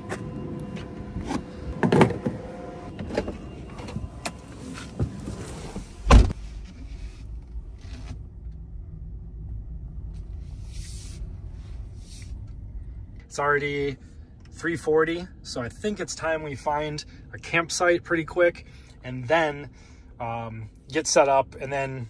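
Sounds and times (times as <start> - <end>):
car door shutting: 0.0 - 6.8
low steady cabin hum: 0.0 - 22.0.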